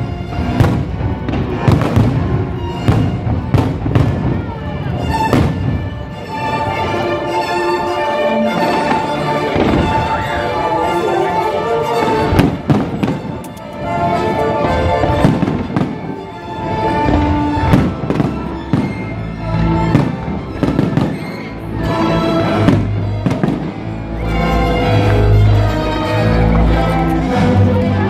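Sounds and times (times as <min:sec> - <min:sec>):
fireworks bangs and crackles: 0:00.0 - 0:07.0, 0:08.6 - 0:10.8, 0:12.0 - 0:19.2, 0:19.8 - 0:21.6, 0:22.5 - 0:23.9
orchestral music: 0:00.0 - 0:28.0.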